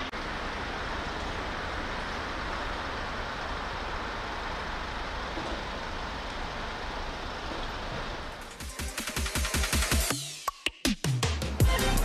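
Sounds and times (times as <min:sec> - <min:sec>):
road traffic: 0:00.0 - 0:09.0
fire engines idling: 0:00.0 - 0:10.1.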